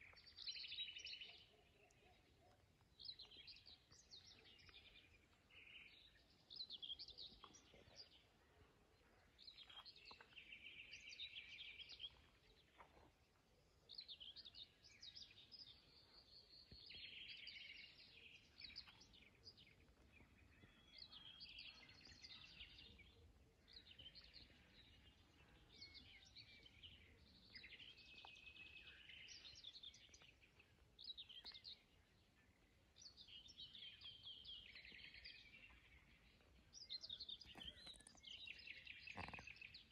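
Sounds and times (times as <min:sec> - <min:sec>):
faint birdsong: 0:00.0 - 0:39.9.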